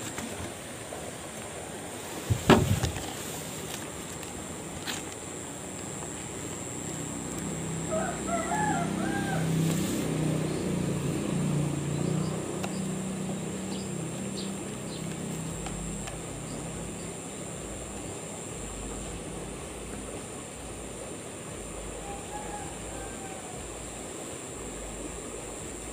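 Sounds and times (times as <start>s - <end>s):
vehicle engine passing by: 7.6s - 17.8s.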